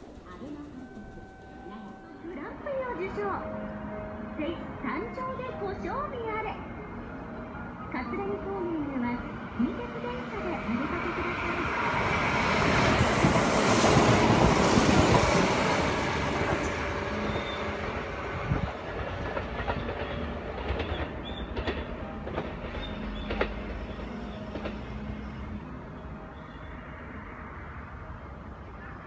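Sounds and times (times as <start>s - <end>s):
train running past: 0.0s - 29.0s
wheels clicking over rail joints: 18.5s - 25.0s.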